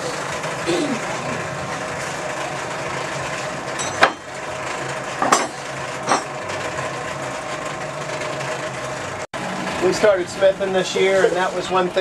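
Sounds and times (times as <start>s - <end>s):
steady mechanical hum: 0.0s - 12.0s
metal tools clanking: 3.7s - 4.3s, 5.2s - 6.4s.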